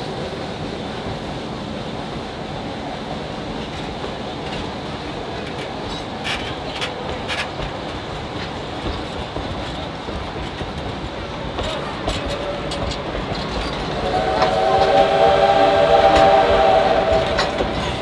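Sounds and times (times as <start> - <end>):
train cars rolling on rails: 0.0 - 18.0
sharp rail clicks: 3.6 - 18.0
steam locomotive whistle: 13.8 - 18.0.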